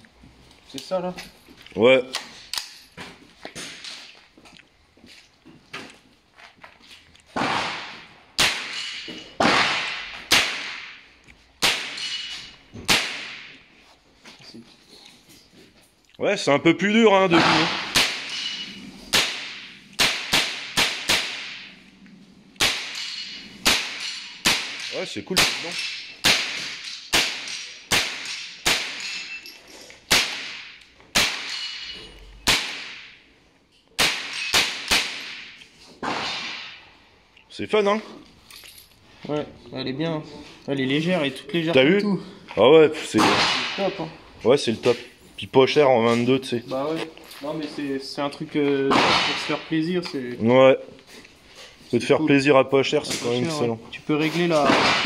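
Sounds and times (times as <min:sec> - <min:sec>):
rifle shots: 0:07.4 - 0:08.8, 0:09.4 - 0:11.0, 0:17.4 - 0:18.4, 0:19.1 - 0:21.8, 0:22.6 - 0:29.0, 0:30.1 - 0:31.7, 0:32.4 - 0:33.1, 0:34.0 - 0:36.8.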